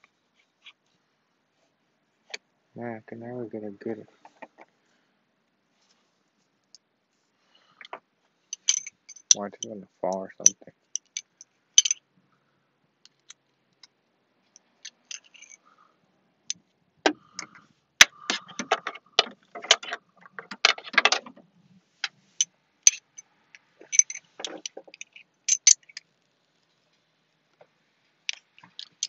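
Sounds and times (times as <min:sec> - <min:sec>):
metal hand tools clinking: 0:08.6 - 0:09.7, 0:10.4 - 0:12.0, 0:15.0 - 0:15.6, 0:22.9 - 0:23.2, 0:23.8 - 0:26.0.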